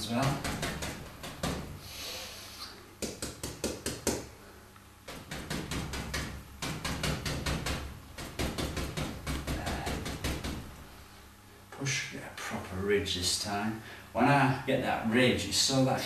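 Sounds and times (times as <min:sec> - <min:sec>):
brush tapping on canvas: 0:03.0 - 0:04.3, 0:05.1 - 0:10.7.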